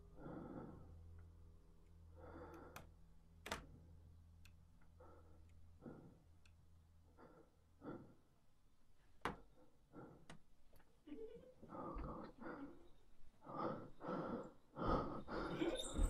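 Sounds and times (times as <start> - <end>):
faint breaths: 0.0 - 1.4, 2.0 - 3.0, 4.8 - 16.0
low hum: 0.0 - 9.0.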